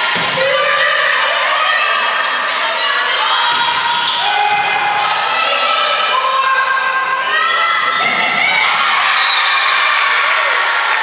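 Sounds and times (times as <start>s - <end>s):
crowd voices: 0.0s - 11.0s.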